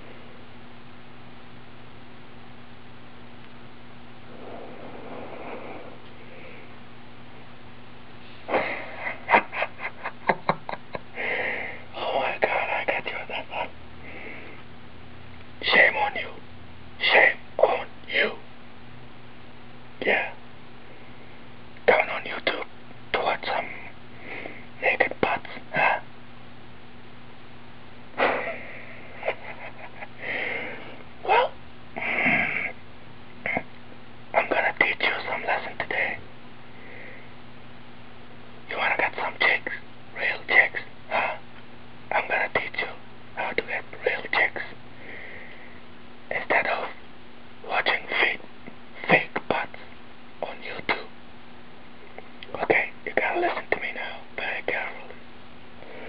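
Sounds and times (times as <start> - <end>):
faint steady hum: 0.0 - 56.0
person sniffing and breathing: 4.3 - 6.8, 8.2 - 9.3, 11.2 - 11.9, 28.2 - 31.0, 32.0 - 32.8, 45.0 - 45.8
person's breathy voice: 28.2 - 32.8, 53.3 - 54.2.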